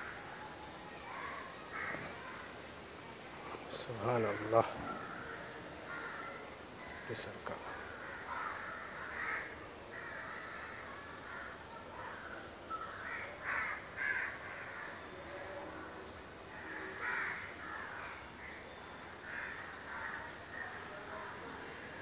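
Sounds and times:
crows cawing: 1.7 - 2.2, 3.8 - 15.0, 16.5 - 20.8.

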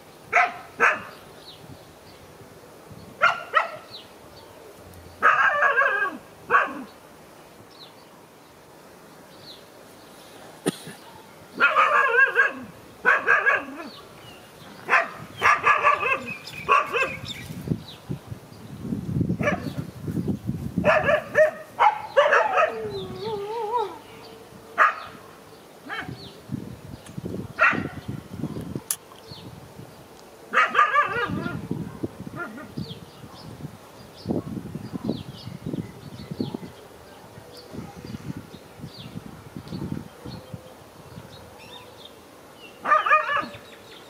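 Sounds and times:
dog barking: 0.3 - 1.2, 3.2 - 3.9, 5.2 - 6.9, 11.0 - 14.0, 14.9 - 17.2, 19.4 - 19.8, 20.8 - 22.9, 24.8 - 25.2, 25.9 - 26.2, 27.6 - 28.0, 30.5 - 32.7, 42.8 - 43.6.

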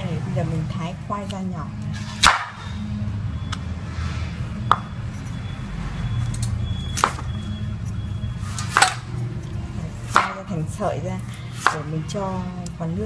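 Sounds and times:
knife chopping on wooden board: 2.2 - 2.6, 8.7 - 9.0, 10.0 - 10.5, 11.5 - 11.9.

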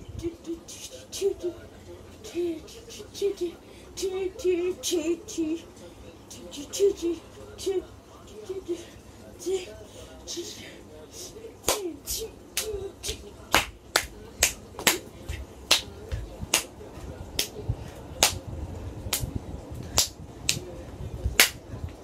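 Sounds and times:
faint voices: 0.0 - 22.0.

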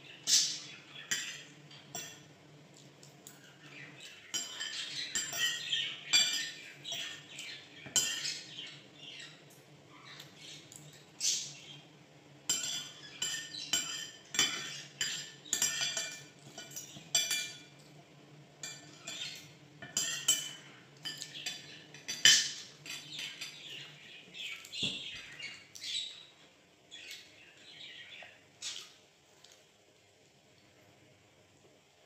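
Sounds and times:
cutlery clinking on a plate: 0.3 - 2.3, 4.0 - 8.4, 12.5 - 18.0, 18.6 - 23.8.

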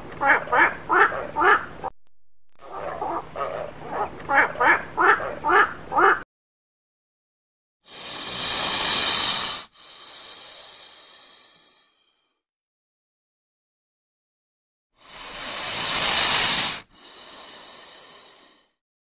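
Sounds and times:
short animal calls: 2.6 - 6.2
snake hissing: 7.8 - 12.4, 15.0 - 18.8.

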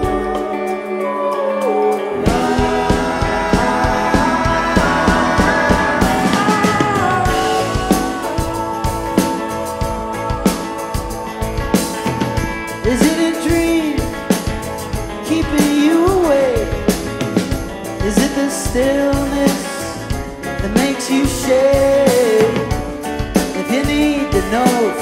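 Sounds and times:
sliding melody: 0.0 - 14.3
rock band playing live: 0.0 - 25.0
drum kit steady beat: 2.2 - 25.0.

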